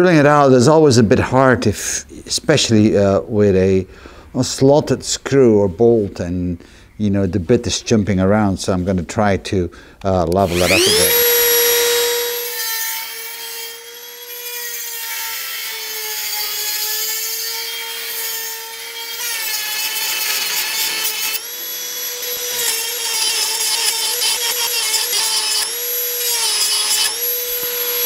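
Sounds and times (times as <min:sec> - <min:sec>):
rotary tool high whine: 0:10.4 - 0:28.0.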